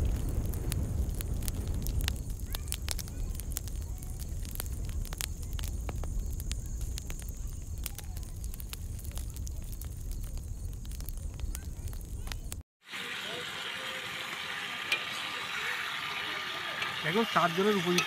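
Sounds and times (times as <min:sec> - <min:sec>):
low rumble: 0:00.0 - 0:07.8
straw and twigs fire crackling: 0:00.0 - 0:18.0.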